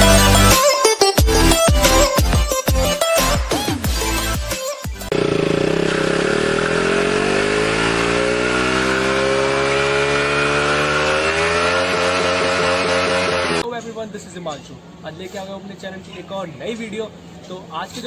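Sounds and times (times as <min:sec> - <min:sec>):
motorcycle engine revving: 0:05.0 - 0:13.6.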